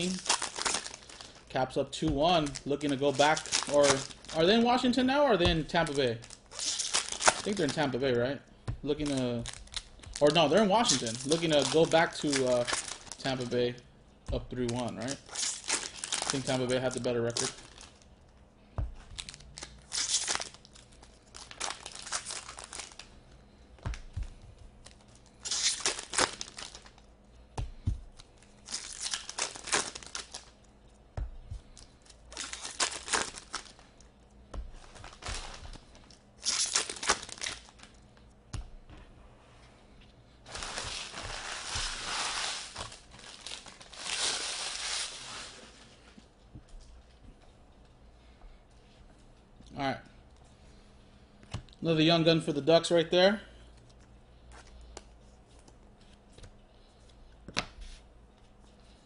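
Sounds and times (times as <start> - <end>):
foil wrappers tearing and crinkling: 0.0 - 8.1, 8.8 - 13.8, 14.5 - 18.0, 19.1 - 23.1, 24.8 - 27.1, 28.2 - 30.6, 31.7 - 33.8, 34.8 - 38.0, 40.5 - 45.8.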